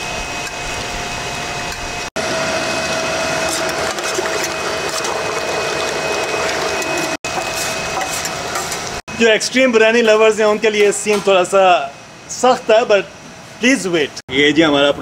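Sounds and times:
electric meat grinder running: 2.2 - 9.0.

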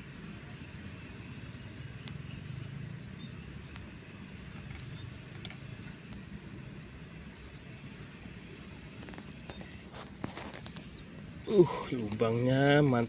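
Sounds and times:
faint ticks: 8.9 - 11.0.

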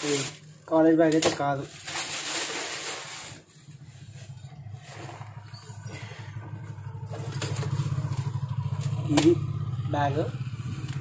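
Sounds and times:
vehicle engine running: 2.6 - 11.0.

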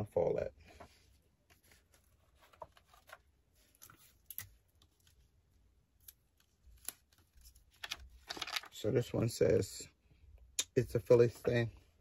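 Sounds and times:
paper rustling: 0.7 - 5.3.

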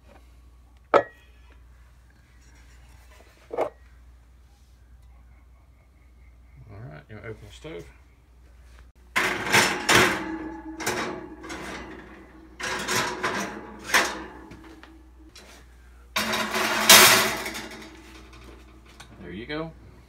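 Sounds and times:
metal clanking and scraping: 9.1 - 15.6, 16.2 - 19.2.

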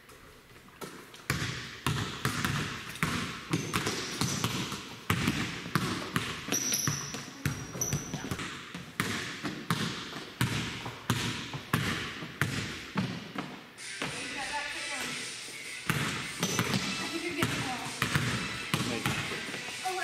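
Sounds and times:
basketball bouncing on hardwood: 0.8 - 14.2, 15.9 - 19.5
shoe squeaks: 6.5 - 8.4, 13.8 - 20.0.

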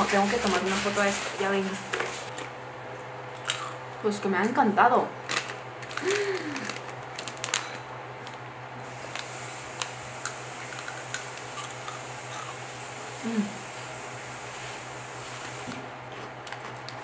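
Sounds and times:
snack packet crinkling: 3.4 - 3.8, 5.2 - 12.0.

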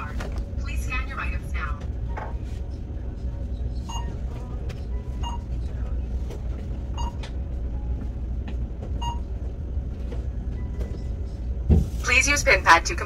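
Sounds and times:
low hum: 0.0 - 13.0
short electronic beeps: 3.9 - 4.2.

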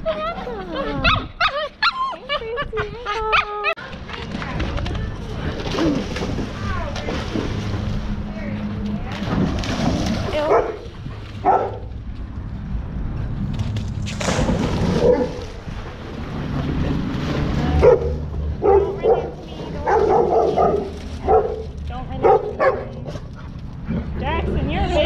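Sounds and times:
water splashing: 4.4 - 12.0, 13.4 - 22.8
dogs yapping: 14.9 - 15.5.

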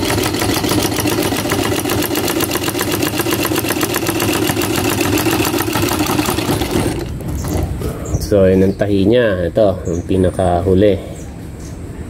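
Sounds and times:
sewing machine running: 0.0 - 7.5.

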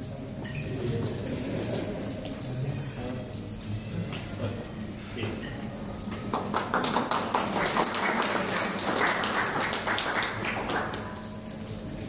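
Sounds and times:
people applauding: 6.2 - 11.5.

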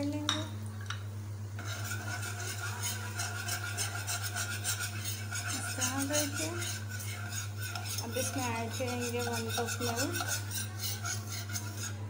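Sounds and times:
oil sizzling: 0.6 - 8.7
whisk scraping metal pan: 1.6 - 12.0.

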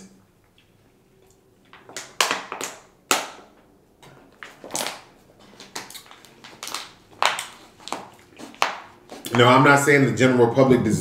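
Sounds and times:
plastic bottle crinkling: 4.2 - 9.5.

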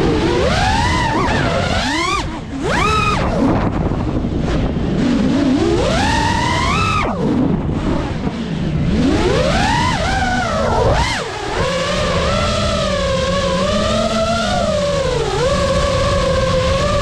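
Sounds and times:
quadcopter motors whining: 0.0 - 17.0.

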